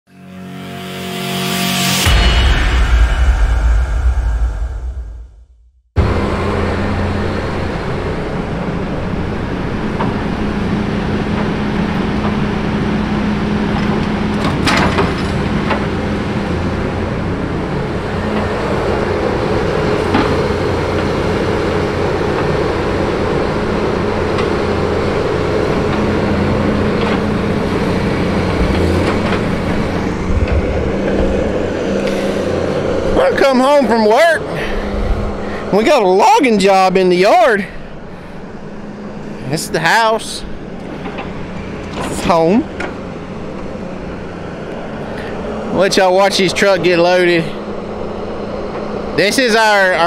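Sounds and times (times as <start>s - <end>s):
higher machine tone: 0.1s - 9.9s
diesel engine running: 6.0s - 50.0s.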